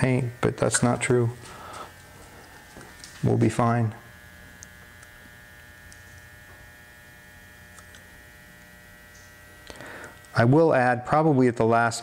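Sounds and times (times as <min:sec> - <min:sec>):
mains hum with buzzing: 0:00.0 - 0:12.0.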